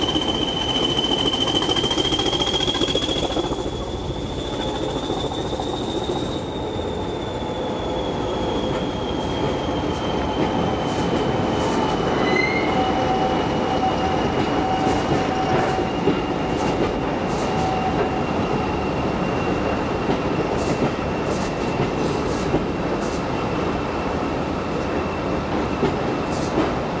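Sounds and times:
high whine: 0:00.0 - 0:07.2
train wheels clicking over rail joints: 0:00.0 - 0:07.2, 0:20.0 - 0:23.3, 0:25.4 - 0:27.0
diesel locomotive rumble: 0:00.0 - 0:07.6.

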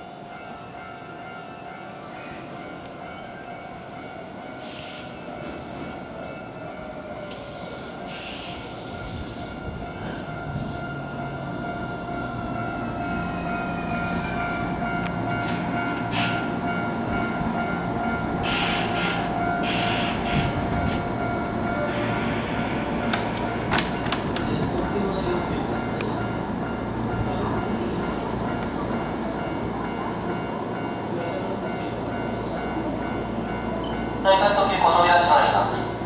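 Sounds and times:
train wheel rumble: 0:04.3 - 0:36.0
air hiss bursts: 0:18.4 - 0:20.6.

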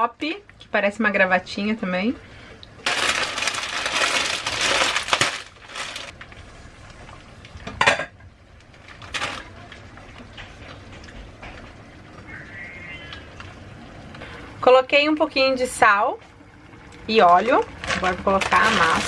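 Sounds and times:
plastic bag crinkling: 0:02.8 - 0:06.2, 0:08.7 - 0:09.8, 0:17.8 - 0:19.0.

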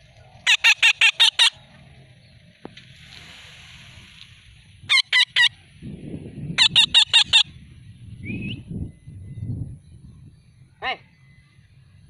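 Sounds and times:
parakeet screeching: 0:00.4 - 0:01.6, 0:04.9 - 0:05.5, 0:06.6 - 0:07.5.

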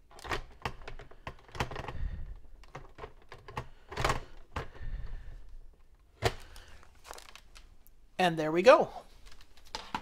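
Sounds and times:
plastic clicks and knocks: 0:00.1 - 0:02.0, 0:02.6 - 0:04.8.

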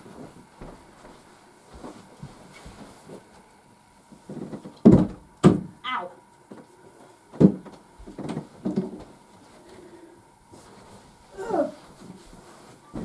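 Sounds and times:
heavy thuds and knocks: 0:04.8 - 0:05.8.

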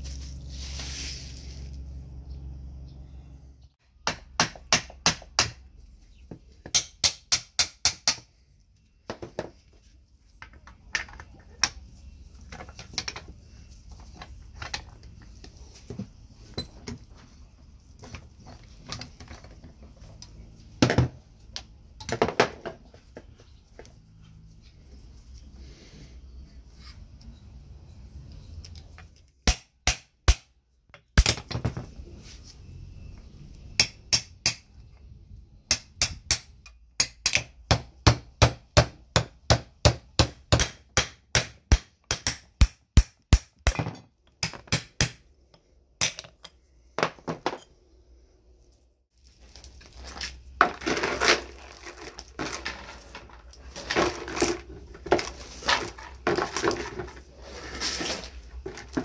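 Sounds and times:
hammer striking steel: 0:06.7 - 0:08.3, 0:33.8 - 0:34.7
chain rattling into a bucket: 0:49.9 - 0:59.0.

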